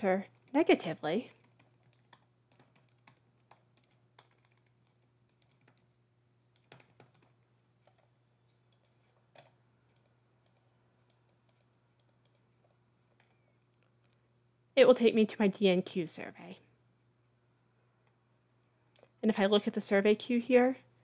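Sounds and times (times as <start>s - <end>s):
faint low hum: 0.0s - 21.0s
computer keyboard keystrokes: 1.3s - 5.9s, 6.5s - 8.1s, 8.7s - 12.5s.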